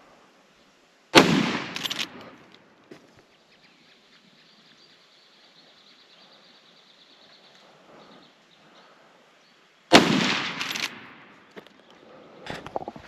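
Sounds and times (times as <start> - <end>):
gunshot: 1.2 - 2.2, 9.9 - 11.2.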